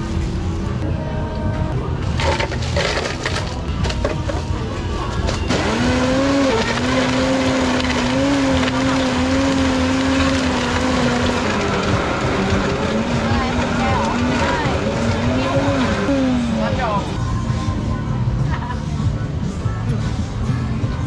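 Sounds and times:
ice cubes clattering into jar: 2.1 - 4.4
blender motor whine: 5.5 - 16.8.

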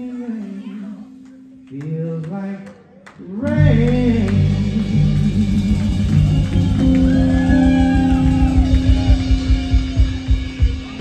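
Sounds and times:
drums: 3.1 - 11.0
bass: 3.2 - 11.0
electric guitar bending notes: 3.5 - 11.0.

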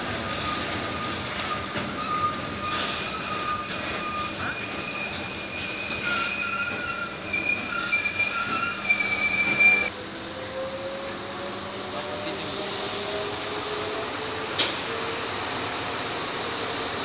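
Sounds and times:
train rolling rumble: 0.0 - 17.0
train wheels squealing: 0.2 - 9.9.

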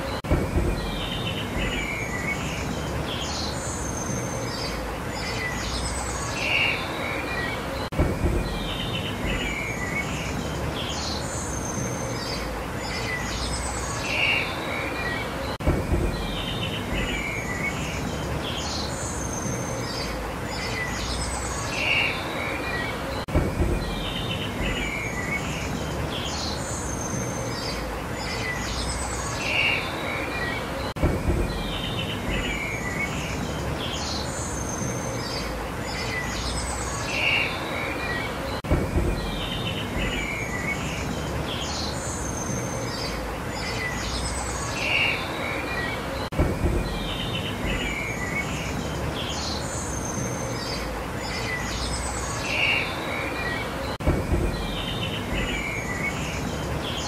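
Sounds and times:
outdoor hiss and rumble: 0.0 - 57.0
small birds chirping: 0.0 - 57.0
soft low thump: 8.0 - 8.6, 15.6 - 16.2, 23.3 - 24.0, 31.0 - 31.6, 38.7 - 39.3, 46.3 - 47.0, 54.0 - 54.7.

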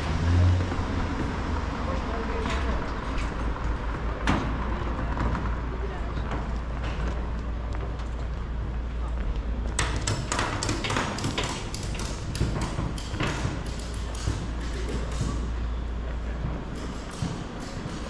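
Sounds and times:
passers-by talking: 0.6 - 9.8
sharp clicks and knocks: 9.7 - 15.5, 16.4 - 18.0.

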